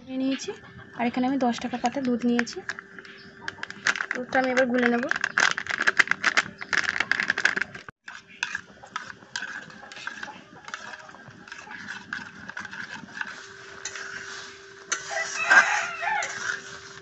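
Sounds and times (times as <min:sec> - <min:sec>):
spoon scraping steel bowl: 0:01.5 - 0:17.0
plastic packet crinkling: 0:01.8 - 0:07.9.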